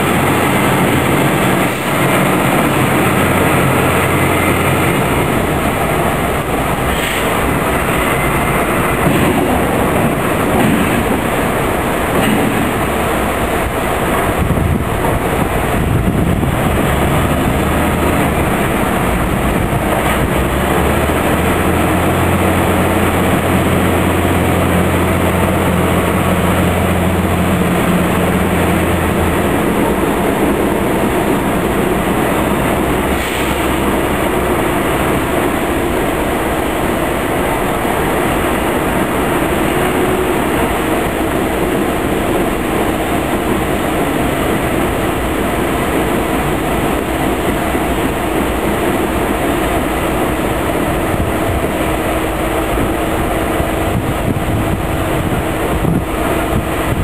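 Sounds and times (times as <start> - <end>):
deeper engine tone: 0.0 - 43.2
diesel locomotive engine rumble: 0.0 - 57.0.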